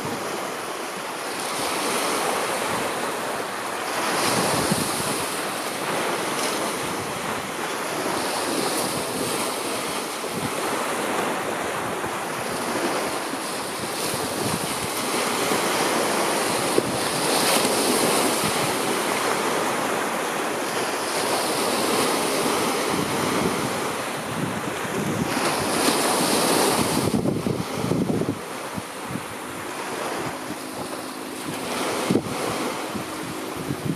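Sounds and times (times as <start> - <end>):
sea waves washing on beach: 0.0 - 33.9
wind buffeting microphone: 0.0 - 33.9.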